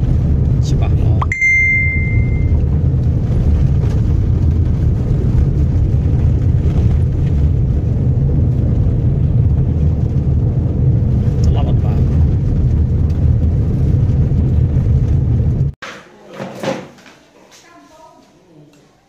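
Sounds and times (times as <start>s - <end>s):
vehicle interior road rumble: 0.0s - 15.8s
short high beep: 1.2s - 2.6s.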